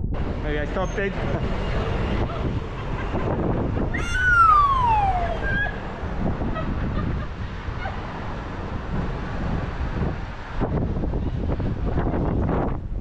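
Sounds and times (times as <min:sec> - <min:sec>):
wind and road noise: 0:00.0 - 0:13.0
high tone sliding down: 0:04.0 - 0:05.8.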